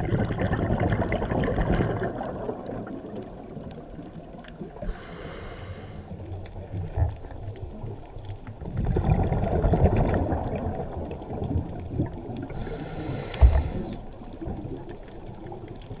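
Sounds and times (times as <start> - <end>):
bubbling exhale underwater: 0.0 - 7.1, 8.6 - 16.0
faint crackling clicks: 0.9 - 16.0
regulator hissing inhale: 4.8 - 6.2, 12.5 - 14.1.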